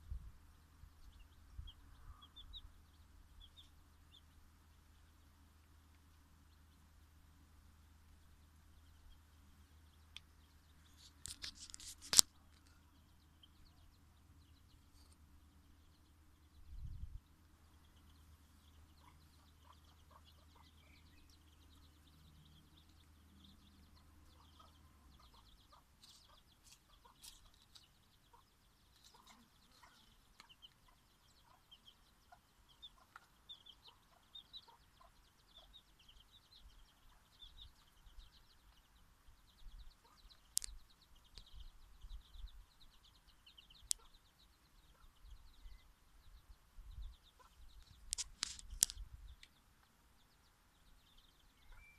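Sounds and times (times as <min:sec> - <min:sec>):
chicks peeping: 0:00.1 - 0:51.9
hen clucking softly: 0:18.8 - 0:21.4, 0:23.9 - 0:35.9, 0:39.9 - 0:40.4, 0:43.7 - 0:44.2, 0:47.3 - 0:47.8
sharp clicks: 0:47.8 - 0:49.5.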